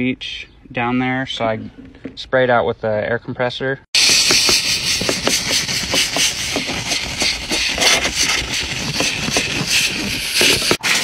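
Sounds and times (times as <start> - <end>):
compressed air hissing: 4.0 - 11.0
fast clicks and knocks: 4.0 - 11.0.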